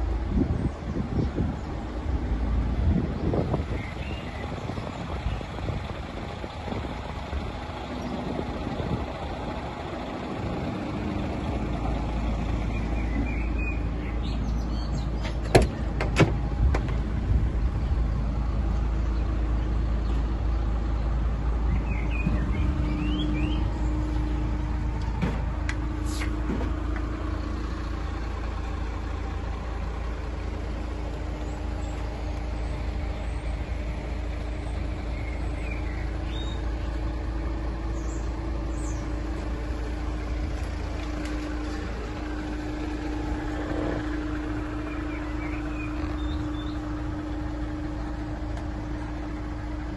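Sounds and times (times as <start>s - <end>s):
steady low rumble: 0.0s - 49.9s
bird chirps: 12.6s - 15.8s, 21.6s - 24.7s, 34.5s - 37.3s, 37.9s - 39.4s, 43.8s - 48.2s.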